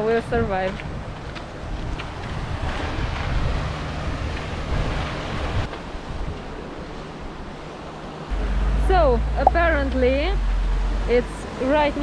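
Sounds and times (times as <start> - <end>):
wind buffeting microphone: 0.0 - 6.7.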